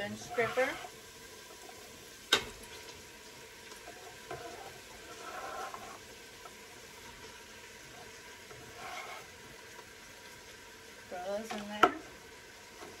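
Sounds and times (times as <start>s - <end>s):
chicken sizzling in oil: 0.0s - 13.0s
scraper scraping cutting board: 0.2s - 0.9s, 8.7s - 9.3s.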